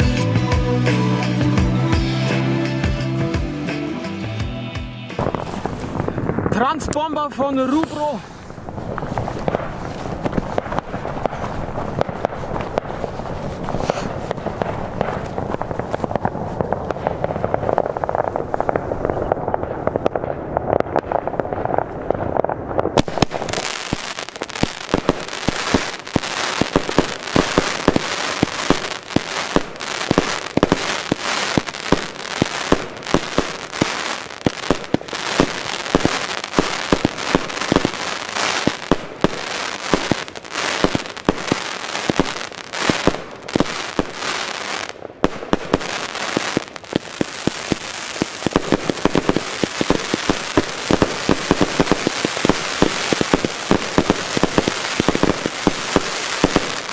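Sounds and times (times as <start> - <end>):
firework launch reports: 5.2 - 41.6
dense firework crackling: 5.2 - 56.9.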